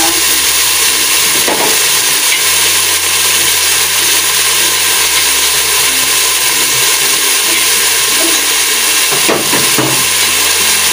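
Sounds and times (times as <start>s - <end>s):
onion sizzling in hot oil: 0.0s - 10.9s.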